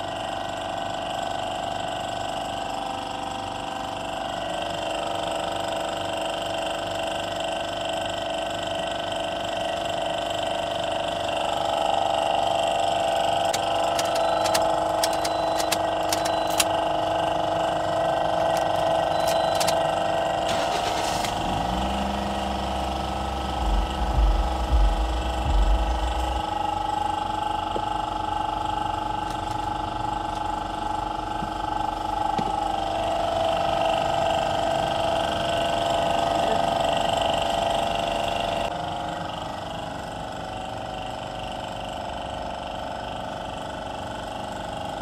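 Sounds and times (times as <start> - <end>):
steady mechanical hum: 0.0 - 45.0
deep low rumble: 21.4 - 28.4.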